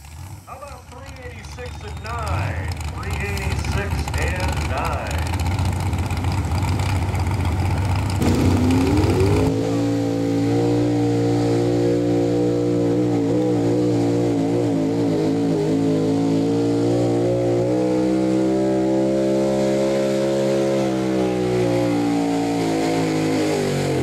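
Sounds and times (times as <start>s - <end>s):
pickup truck engine at full throttle: 0.0s - 24.0s.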